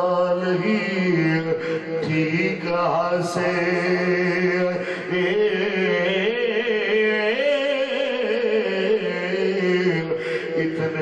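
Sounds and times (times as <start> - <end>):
man chanting into a microphone: 0.0 - 11.0.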